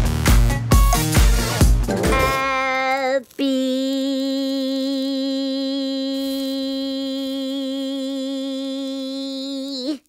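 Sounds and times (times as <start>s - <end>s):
person holding long note: 1.9s - 2.9s.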